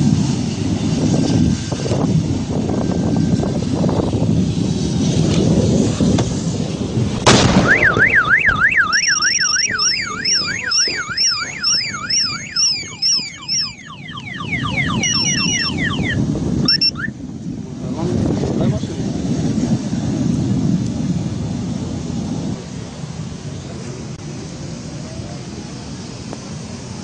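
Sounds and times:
sharp bang: 7.2s - 8.8s
car alarm warbling and beeping: 7.6s - 17.2s.

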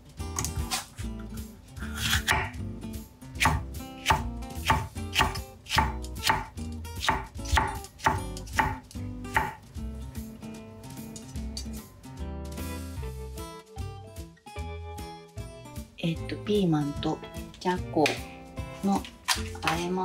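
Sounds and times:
knife chopping on wooden board: 1.9s - 2.6s, 3.4s - 9.6s.

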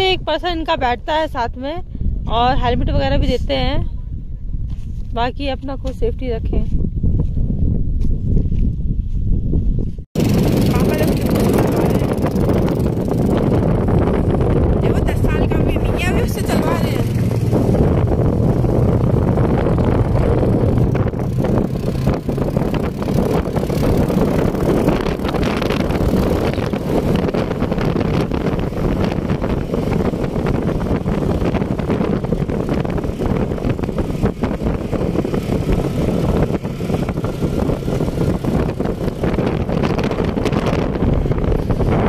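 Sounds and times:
wind buffeting microphone: 0.0s - 42.0s
quad bike engine running: 10.2s - 42.0s.

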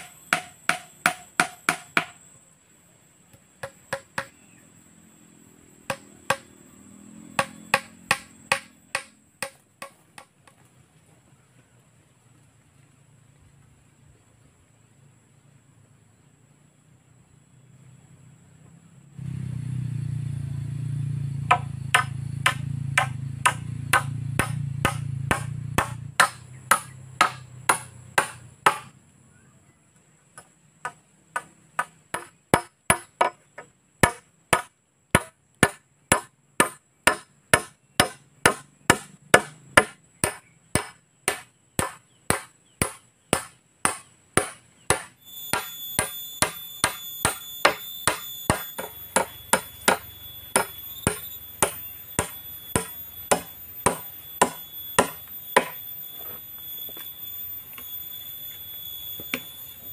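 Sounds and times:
hatchet hammering nail into wood: 0.0s - 2.2s, 3.6s - 4.3s, 5.9s - 6.5s, 7.4s - 10.3s, 21.5s - 28.9s, 30.8s - 33.4s, 34.0s - 55.8s
steady high whine: 0.0s - 9.9s, 45.1s - 59.9s.

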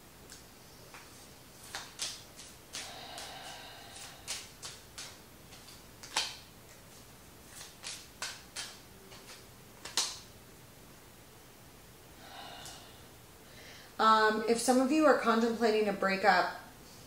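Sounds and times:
cards clicking and snapping: 0.3s - 6.9s, 7.5s - 10.3s.

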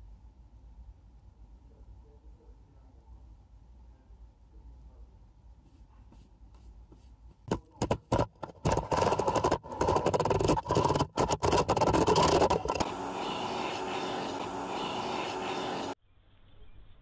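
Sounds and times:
scraping and rubbing against casing: 6.1s - 16.0s.

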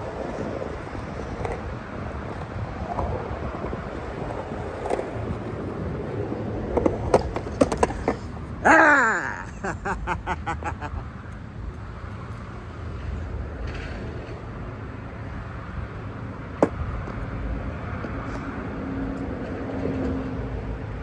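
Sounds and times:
road traffic rumble: 0.0s - 21.0s
man laughing: 8.6s - 11.1s.

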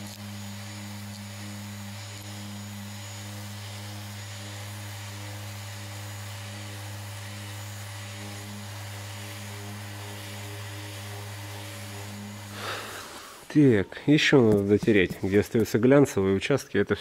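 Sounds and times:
orbital sander humming: 0.0s - 15.8s.

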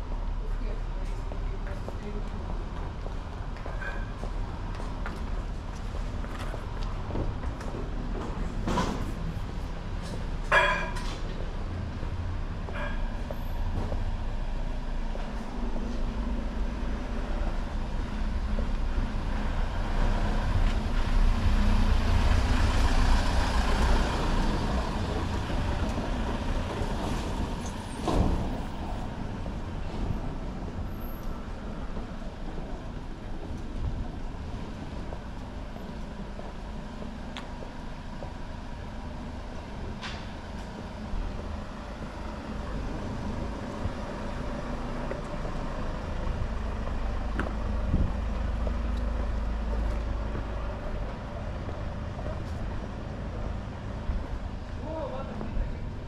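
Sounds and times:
rumble of traffic: 0.0s - 56.0s.

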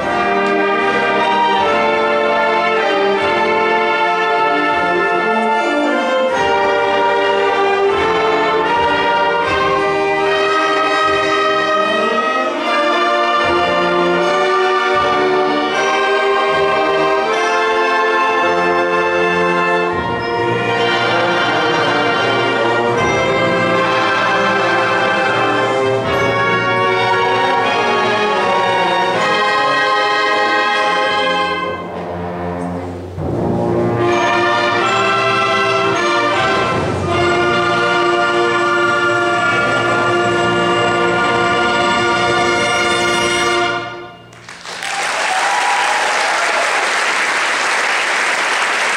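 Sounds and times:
concert band playing: 0.0s - 46.7s
audience applause: 44.3s - 48.9s.

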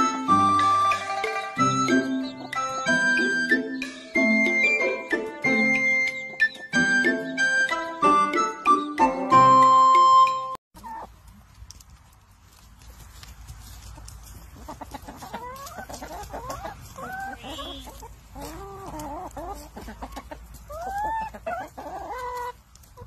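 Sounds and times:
hens clucking: 0.4s - 4.8s, 10.8s - 11.6s, 12.7s - 23.0s.

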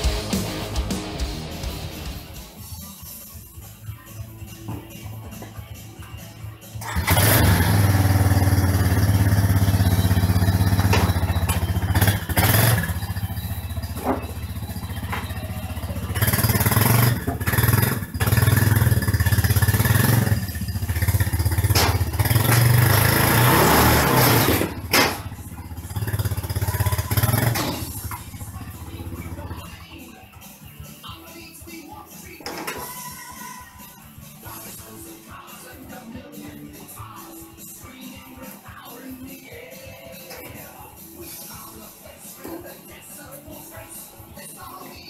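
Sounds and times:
quad bike engine revving: 6.8s - 29.8s.

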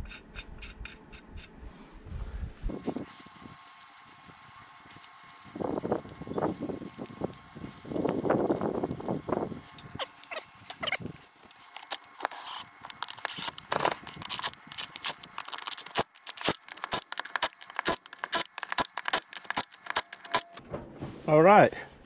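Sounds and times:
sharp ratchet clicks: 2.9s - 20.6s
lug nuts clinking and scraping: 9.6s - 20.6s.

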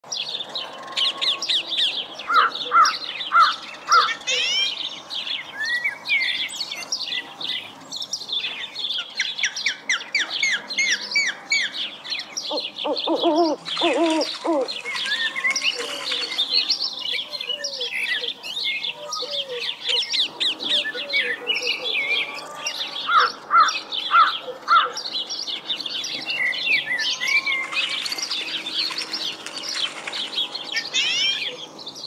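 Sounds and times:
songbirds chirping: 0.0s - 32.0s
loud bird call: 12.5s - 25.0s, 30.7s - 31.8s
low bird call: 12.5s - 25.0s.

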